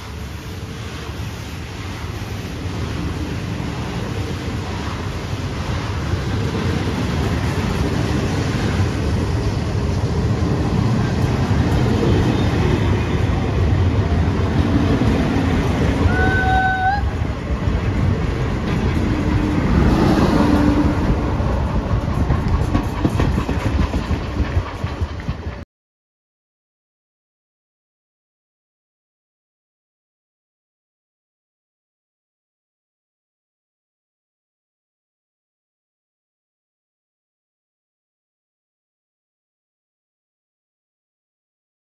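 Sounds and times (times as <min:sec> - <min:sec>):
train wheels rumbling on rails: 0:00.0 - 0:25.6.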